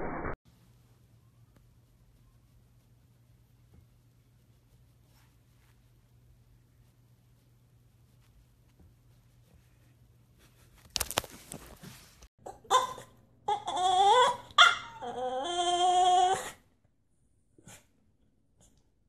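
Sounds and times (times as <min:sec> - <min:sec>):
puppy whining and yowling: 0:12.7 - 0:16.6.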